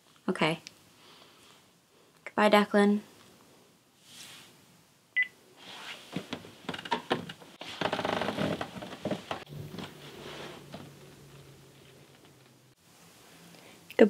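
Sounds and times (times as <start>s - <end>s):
bedding rustling: 5.6s - 13.3s.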